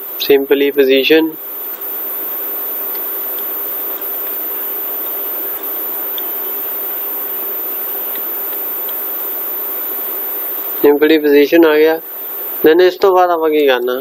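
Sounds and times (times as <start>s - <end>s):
faint steady hum: 0.0s - 14.0s
faint ticks: 2.9s - 4.2s, 5.0s - 6.6s, 8.0s - 9.4s.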